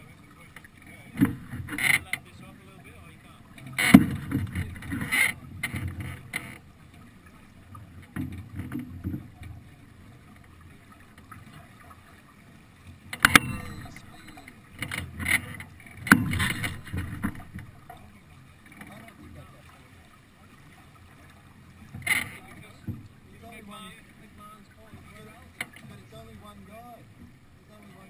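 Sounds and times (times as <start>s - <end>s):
water rushing along a hull: 0.0s - 28.0s
sharp knocks: 3.8s - 5.1s, 16.0s - 17.6s.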